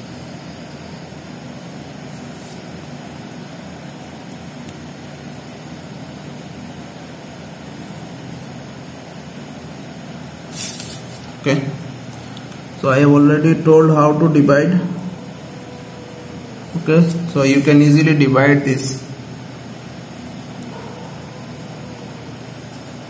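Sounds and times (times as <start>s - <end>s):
steady hiss: 10.2s - 12.5s.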